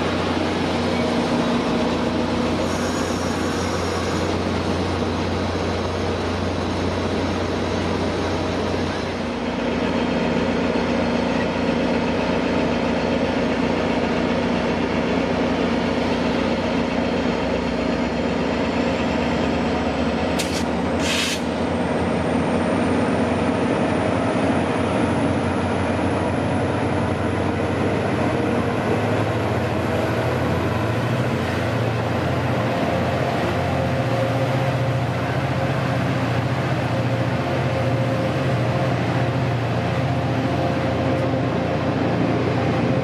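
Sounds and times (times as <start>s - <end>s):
locomotive engine deep drone: 0.0s - 43.0s
click and short hiss: 20.4s - 21.5s.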